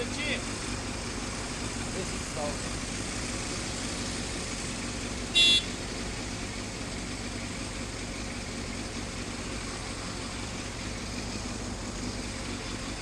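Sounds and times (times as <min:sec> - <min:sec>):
motorcycle engine idling: 0:00.0 - 0:13.0
short high-pitched horn toot: 0:05.4 - 0:05.7.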